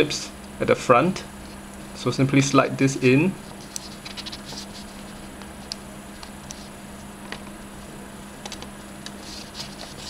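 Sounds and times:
paper and plastic rustling: 3.5 - 5.3, 9.1 - 10.0.

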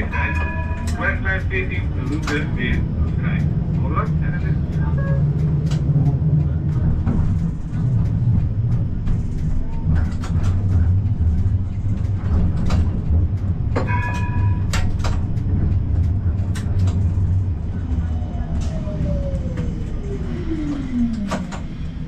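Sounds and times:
high ringing tone: 0.0 - 1.2, 13.9 - 14.7
tram rumbling: 0.0 - 22.0
wheels clicking on track: 0.0 - 22.0.

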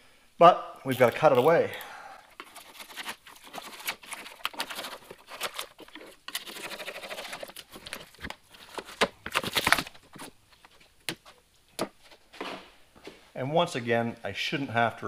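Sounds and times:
knife cutting cardboard and foam: 2.4 - 11.3.

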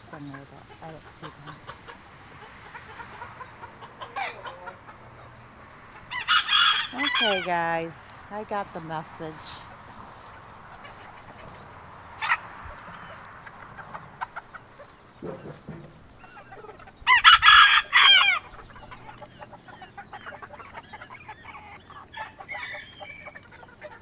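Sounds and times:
hens clucking softly: 0.0 - 8.8, 9.5 - 24.0
rooster crowing: 6.1 - 7.5, 17.0 - 18.5.

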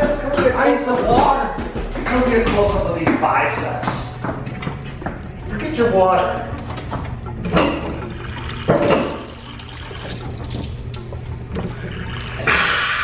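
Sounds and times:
water running from tap: 7.5 - 13.0
person drinking and gulping: 7.8 - 13.0.

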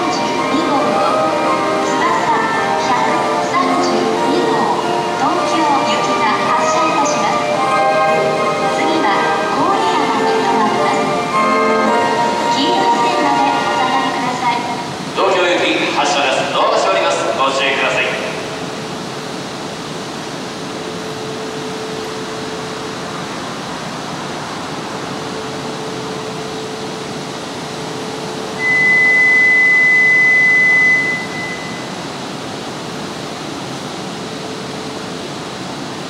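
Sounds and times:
train blowers humming: 0.0 - 36.0
faint steady tone: 24.5 - 35.8
high electronic beep: 28.6 - 32.0.

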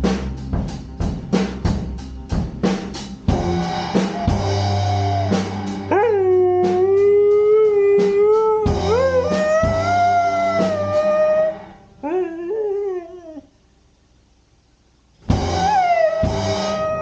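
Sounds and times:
music with drum beat: 0.0 - 11.4, 15.2 - 17.0
dog howling: 4.0 - 13.5, 15.5 - 17.0.

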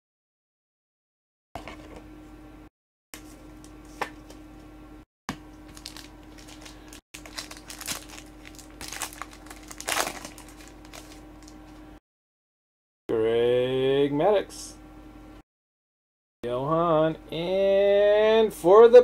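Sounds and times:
wrapper crinkling and tearing: 5.7 - 11.7.

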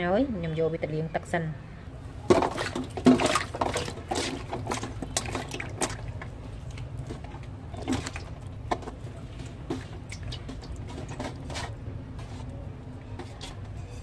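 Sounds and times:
hands splashing in water: 2.3 - 7.2.

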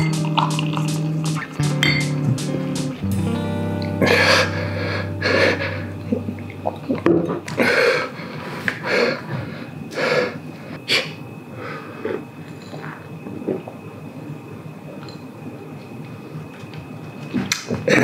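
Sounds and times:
person breathing sharply: 4.0 - 6.0, 7.5 - 12.0.

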